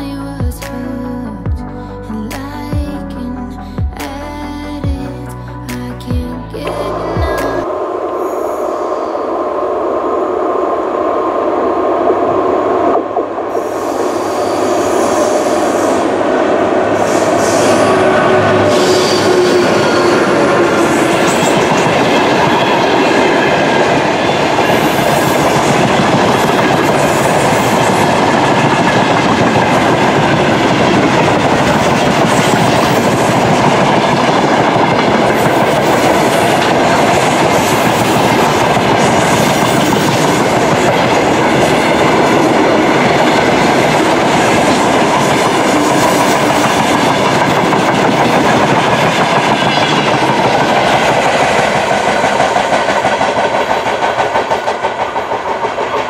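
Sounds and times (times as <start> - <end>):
freight train wheels clattering: 17.0 - 56.0.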